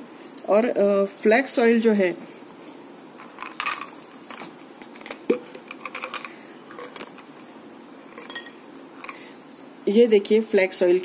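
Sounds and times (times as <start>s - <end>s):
plastic bottles clicking and tapping: 3.2s - 7.5s.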